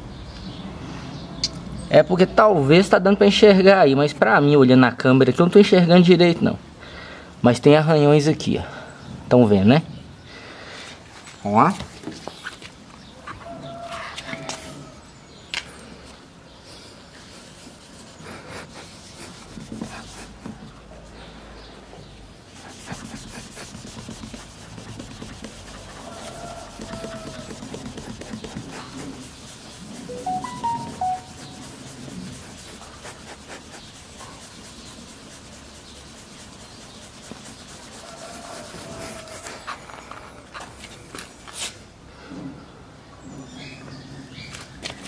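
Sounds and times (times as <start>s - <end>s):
cloth rubbing on car paint: 17.2s - 39.8s
short whistle-like tones: 30.1s - 31.6s.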